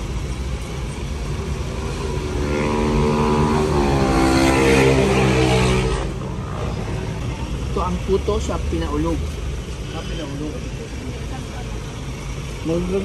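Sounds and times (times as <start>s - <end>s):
low engine rumble: 0.0s - 13.0s
vehicle engine passing: 1.4s - 9.2s.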